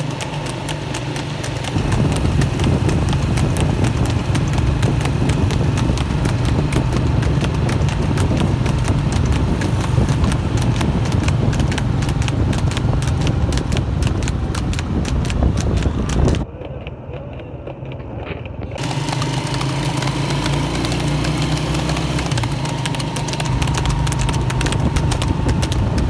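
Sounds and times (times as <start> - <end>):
hooves trotting on asphalt: 0.0 - 26.0.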